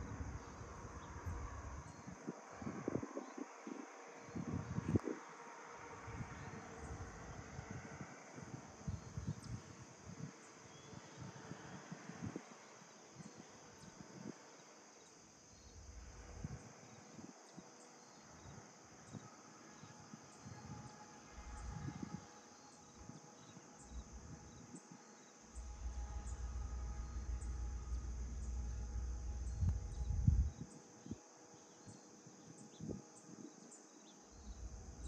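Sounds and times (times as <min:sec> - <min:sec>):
low rumble: 0:00.0 - 0:03.0, 0:23.8 - 0:24.6, 0:25.5 - 0:30.7, 0:34.3 - 0:35.0
insects trilling: 0:00.0 - 0:35.0.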